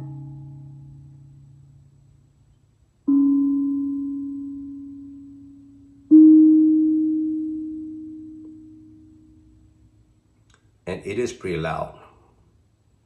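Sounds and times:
steel tongue drum notes ringing: 0.0 - 1.7, 3.0 - 10.1.

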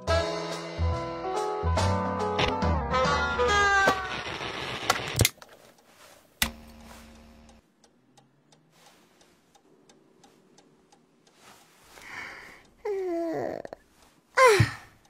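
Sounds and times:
clock ticking: 5.7 - 15.0
radio switch click: 6.4 - 7.5.

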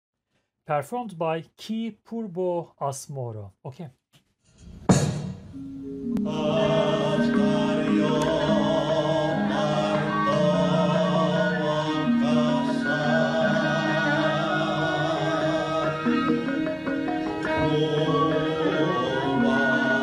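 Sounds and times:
person singing long held notes: 6.2 - 20.0.

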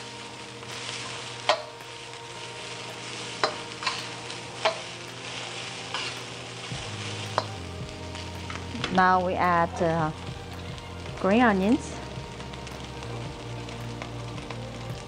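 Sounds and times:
fried rice sizzling in a wok: 0.0 - 15.0.

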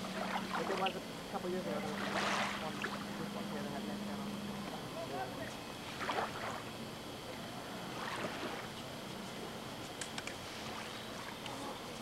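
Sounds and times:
lake waves lapping on sand: 0.0 - 3.3, 5.8 - 6.7, 7.9 - 8.8, 10.1 - 11.5.

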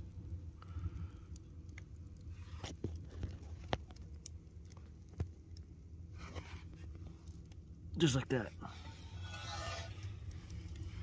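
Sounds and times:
low steady rumble: 0.0 - 11.0
wood fire pops and crackles: 0.0 - 11.0.

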